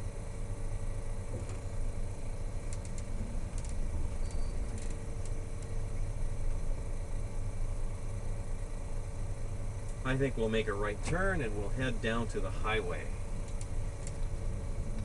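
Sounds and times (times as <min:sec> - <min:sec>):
car engine rumble: 0:00.0 - 0:15.0
road noise: 0:00.0 - 0:15.0
faint clicks: 0:02.7 - 0:05.8, 0:13.4 - 0:14.3.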